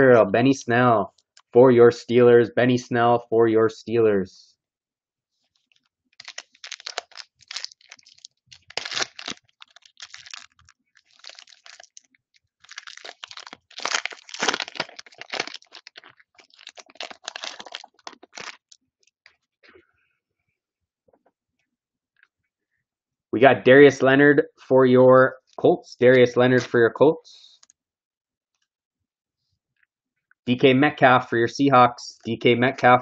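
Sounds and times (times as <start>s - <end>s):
foil wrapper crinkling as torn open: 6.2s - 18.8s.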